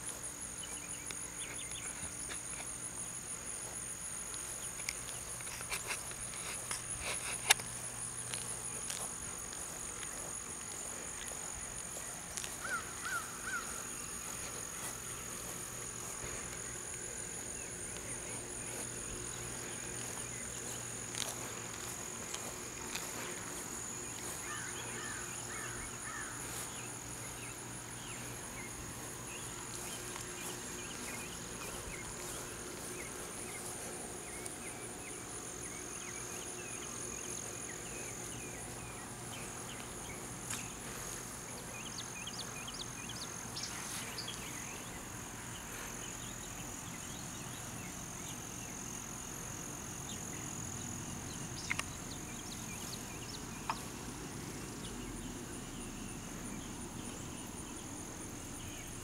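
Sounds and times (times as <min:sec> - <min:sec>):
insects trilling: 0:00.0 - 0:59.0.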